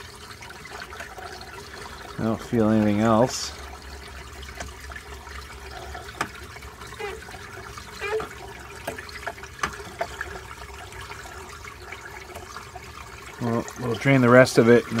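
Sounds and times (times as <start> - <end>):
water trickling and splashing: 0.0 - 15.0
small knocks in pump: 6.1 - 6.4, 8.0 - 10.4.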